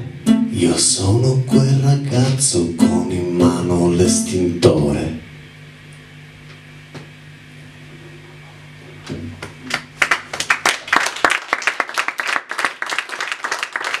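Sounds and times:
audience clapping: 0:09.4 - 0:14.0.

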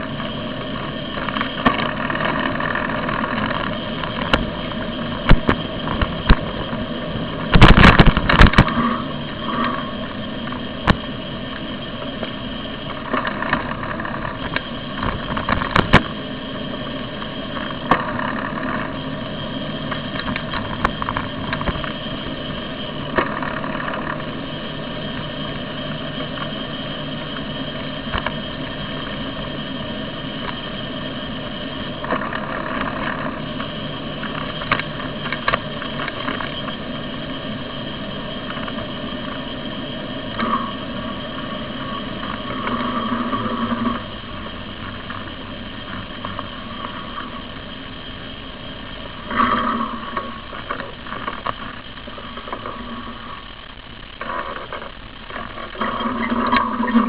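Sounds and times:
bicycle rolling over pavement: 0:00.0 - 0:57.0
clicks and knocks over bumps: 0:00.2 - 0:09.8, 0:12.2 - 0:16.2, 0:17.2 - 0:19.0, 0:32.0 - 0:36.8, 0:49.3 - 0:57.0.

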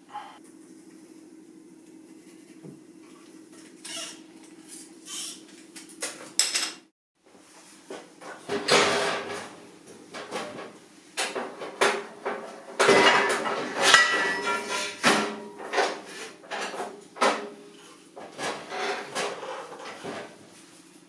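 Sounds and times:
steel tube clanking on metal: 0:12.3 - 0:17.5.

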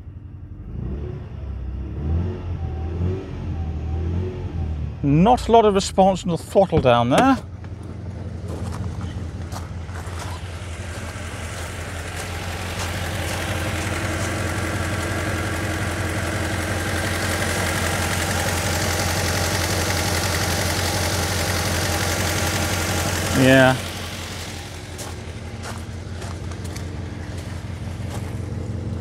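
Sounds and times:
car engine idling roughly: 0:05.9 - 0:29.0.

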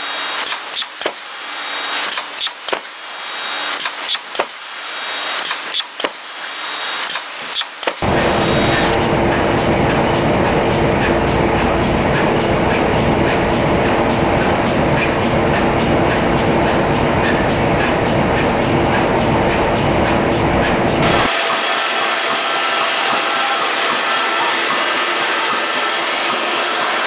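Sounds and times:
regular mechanical ticking: 0:07.0 - 0:21.3
machinery mechanical rumble: 0:08.0 - 0:27.0
steady machine hum: 0:08.0 - 0:27.0.

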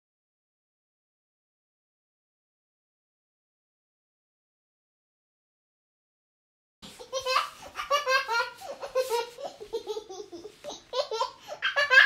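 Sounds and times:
baby laughing: 0:06.8 - 0:12.0.

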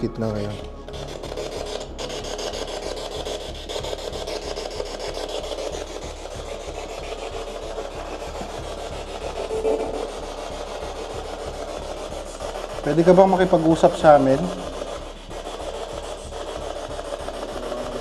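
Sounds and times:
pulsing rasping static: 0:00.0 - 0:18.0.

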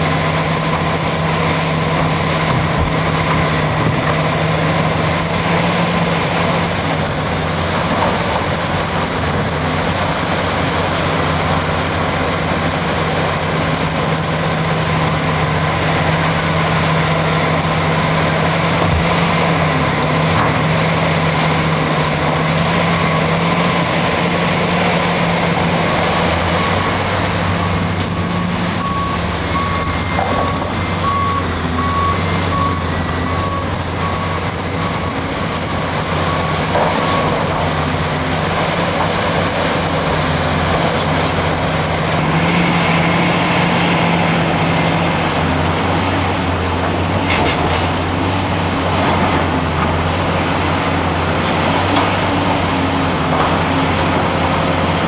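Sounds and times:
excavator loading rock: 0:00.0 - 0:42.5, 0:45.1 - 0:55.0
heavy diesel engines running: 0:00.0 - 0:55.0
reversing alarm beeping: 0:22.8 - 0:23.9, 0:25.8 - 0:38.0.

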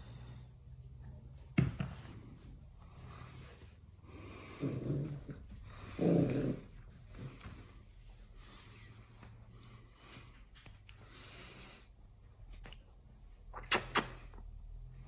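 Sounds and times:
puppy grunting: 0:04.4 - 0:07.4.

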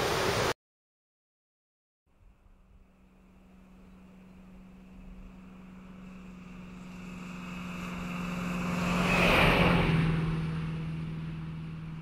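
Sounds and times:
vehicle passing by: 0:02.2 - 0:12.0.

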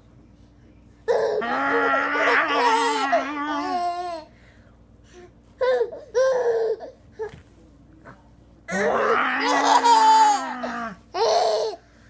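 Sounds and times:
baby laughing: 0:01.1 - 0:04.3, 0:05.6 - 0:07.0, 0:09.4 - 0:11.8.

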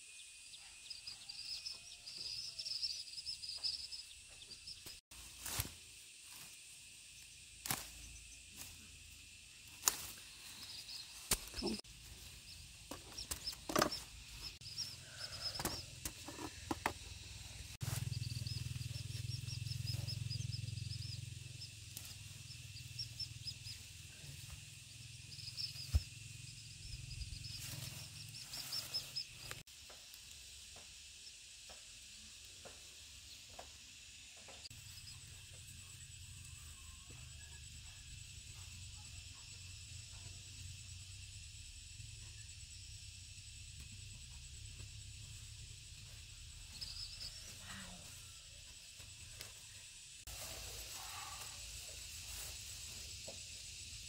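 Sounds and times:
insect drone: 0:00.0 - 0:54.0.

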